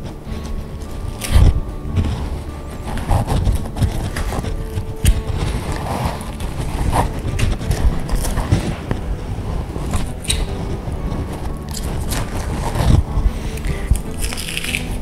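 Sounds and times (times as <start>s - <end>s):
steady low rumble: 0.0s - 15.0s
knife scraping meat and bone: 9.8s - 15.0s.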